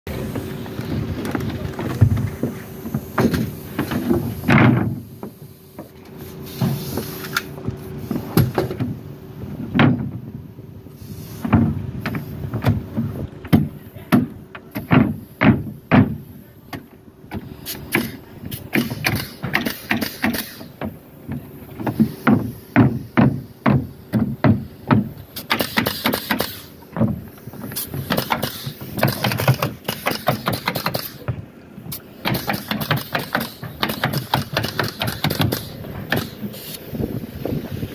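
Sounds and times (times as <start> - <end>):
knocks and handling noise: 0.3 - 10.4, 11.4 - 36.6
nail gun firing: 17.7 - 20.7, 22.3 - 26.7, 27.8 - 31.3, 31.9 - 36.8.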